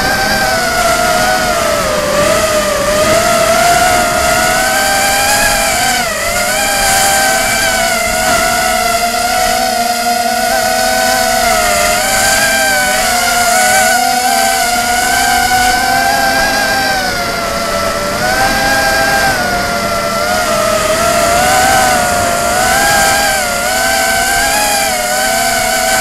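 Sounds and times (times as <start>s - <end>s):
drone motors whining: 0.0s - 26.0s.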